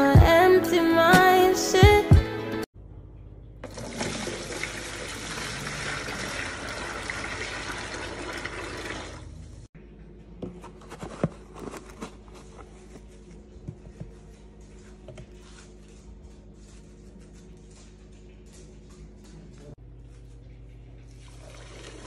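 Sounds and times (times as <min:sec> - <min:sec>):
water pouring into bucket: 0:03.6 - 0:09.3, 0:21.1 - 0:22.0.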